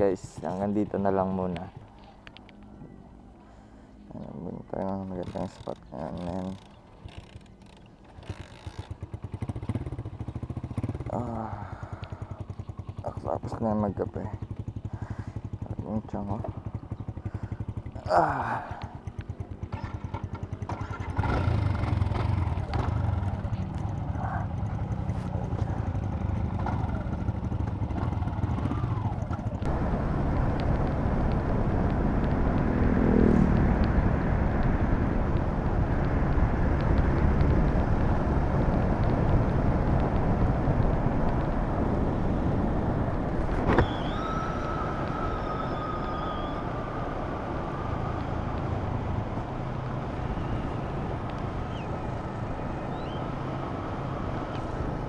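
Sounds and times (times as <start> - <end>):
motorcycle engine: 0.0 - 55.0
wind noise on microphone: 29.7 - 47.2.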